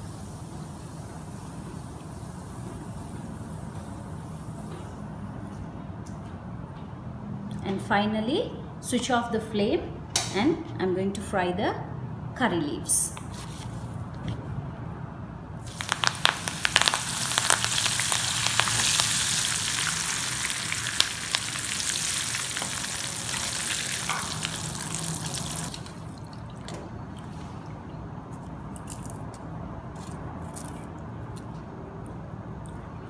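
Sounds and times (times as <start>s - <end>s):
leaves sizzling in hot oil: 15.6s - 26.1s.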